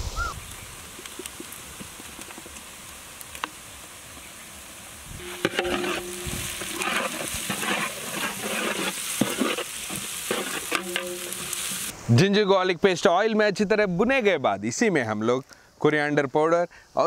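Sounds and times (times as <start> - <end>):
onions sizzling in hot oil: 0.2 - 12.0
metal ladle scraping pan: 5.2 - 11.9.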